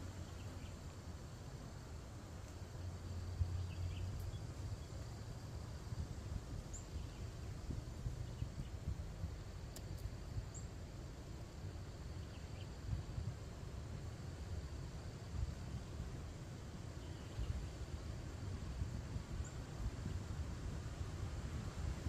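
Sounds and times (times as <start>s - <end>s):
low wind rumble: 0.0s - 22.0s
faint bird chirps: 3.4s - 5.0s, 6.7s - 7.4s, 12.1s - 12.8s, 17.0s - 17.7s.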